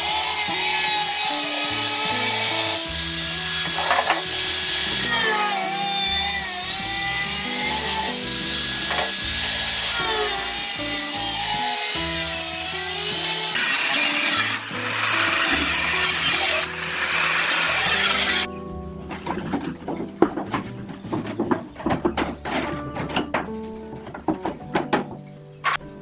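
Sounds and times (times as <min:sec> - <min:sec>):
angle grinder cutting sheet steel: 0:00.0 - 0:18.5
background music with bass line: 0:01.7 - 0:13.5, 0:14.2 - 0:26.0.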